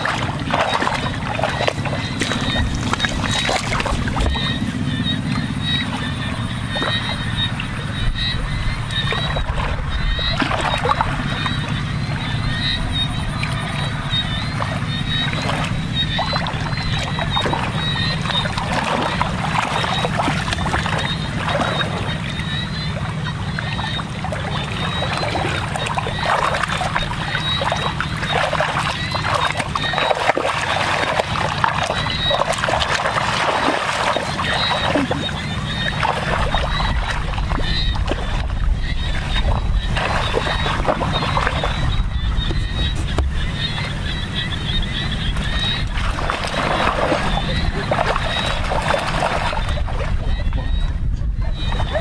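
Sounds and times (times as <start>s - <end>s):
muddy water splashing: 0.0s - 52.0s
low rumble: 30.8s - 52.0s.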